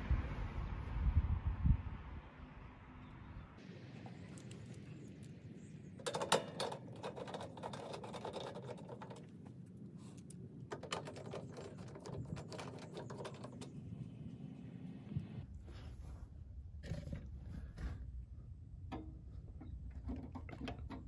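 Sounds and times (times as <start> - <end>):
hand tool clicking and rattling: 6.0 - 9.3.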